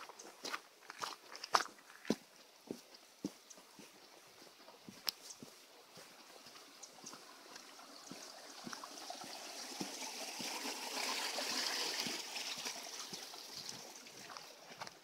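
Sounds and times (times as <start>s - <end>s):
footsteps on dirt trail: 0.0s - 11.1s, 11.9s - 15.0s
stream rushing: 6.1s - 14.8s.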